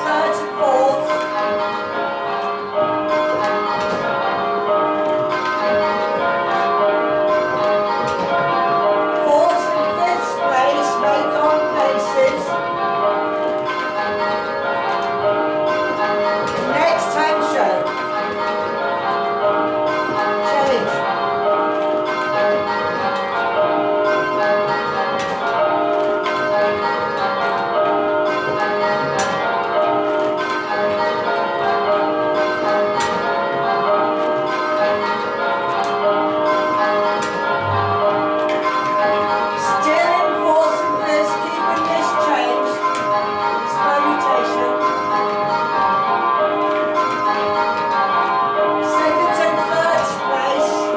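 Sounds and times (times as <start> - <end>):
tower bells ringing: 0.0 - 50.9.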